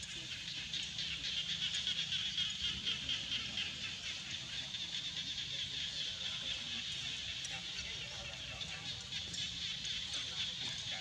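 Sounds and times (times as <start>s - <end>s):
insects buzzing chorus: 0.0s - 11.0s.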